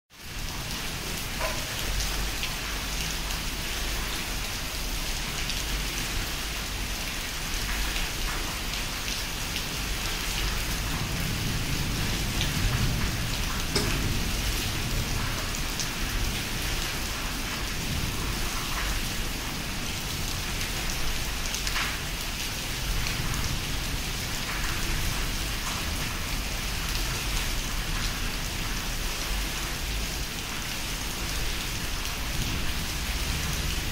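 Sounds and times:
steady rain: 0.1s - 33.9s
thunder rumble: 11.0s - 16.9s.

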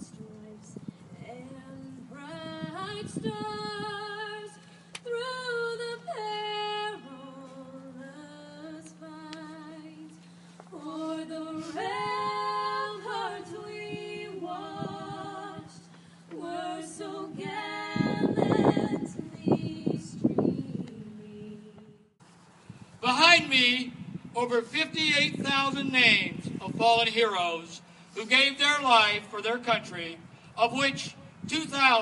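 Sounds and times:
woman singing with vibrato: 0.0s - 10.2s, 10.8s - 22.1s
steady low hum: 0.0s - 32.0s.

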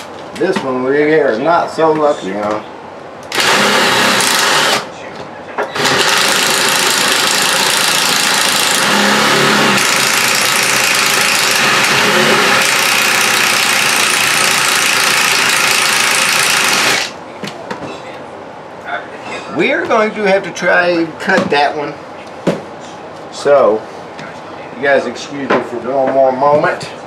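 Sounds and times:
impact driver hammering: 3.3s - 4.8s, 5.8s - 17.1s.

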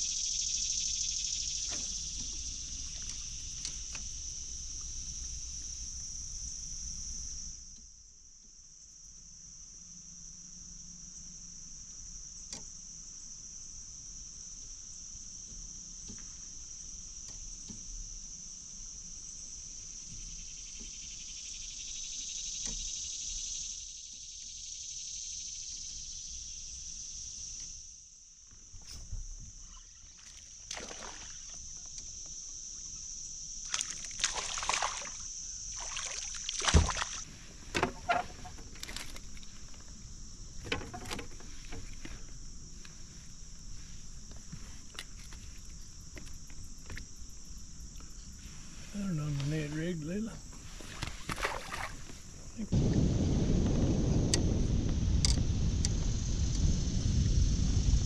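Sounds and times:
insects droning: 0.0s - 58.0s
sharp knocks and rustles: 1.6s - 4.2s, 28.4s - 31.0s, 36.5s - 47.5s.

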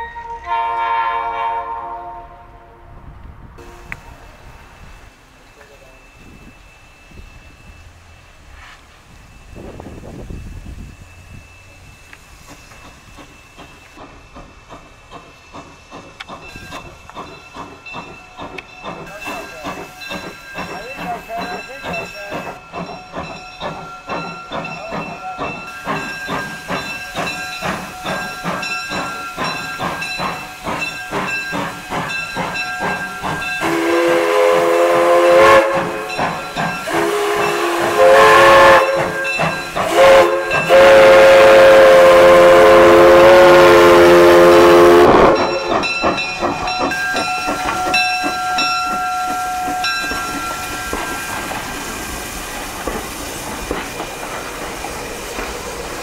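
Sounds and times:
steam whistle blasts: 0.0s - 2.6s, 33.6s - 36.2s, 36.8s - 45.6s
steam locomotive chuffing: 3.6s - 56.0s.

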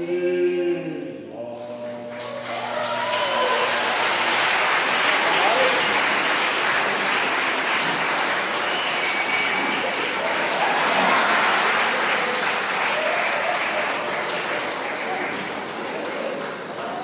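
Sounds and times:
audience applause: 2.2s - 17.0s.

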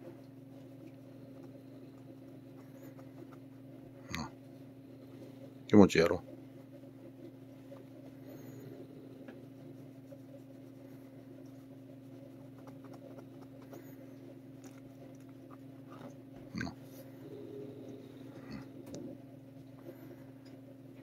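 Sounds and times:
low room hum: 0.0s - 21.0s
cat growling: 15.4s - 19.2s.

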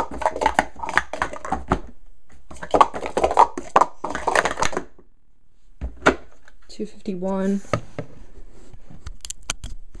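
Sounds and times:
plastic cups clacking: 0.0s - 5.1s.

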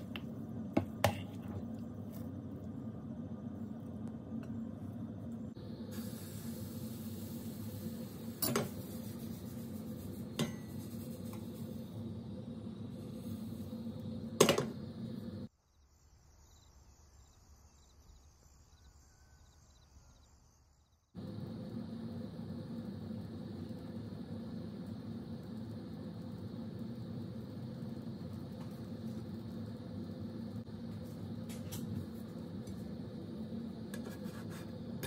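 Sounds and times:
steady kitchen hum: 0.0s - 15.5s, 21.2s - 35.0s
faint hiss: 5.0s - 20.6s.

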